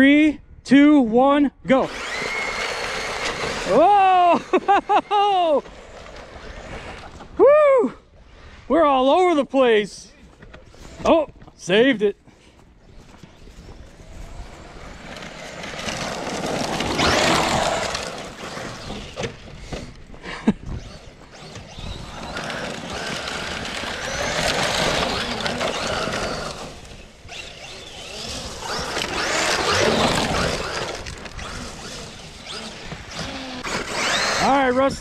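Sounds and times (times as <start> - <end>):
electric motor whining: 1.8 - 7.3, 13.7 - 20.0, 20.6 - 35.0.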